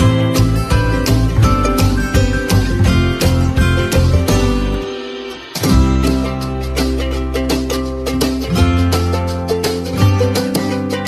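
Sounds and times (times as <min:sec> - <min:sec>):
bass line: 0:00.0 - 0:11.0
plucked string instrument: 0:00.0 - 0:11.0.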